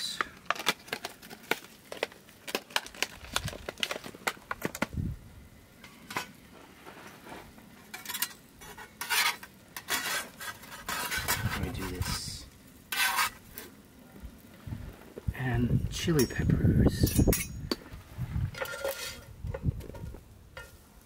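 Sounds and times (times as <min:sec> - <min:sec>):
utensils and dishes clattering: 0:16.2 - 0:17.7, 0:18.6 - 0:19.2.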